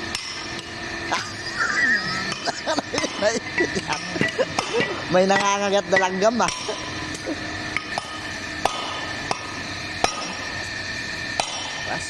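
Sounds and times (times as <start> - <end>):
hammer striking metal: 3.9 - 7.1, 7.8 - 10.6, 11.4 - 11.9.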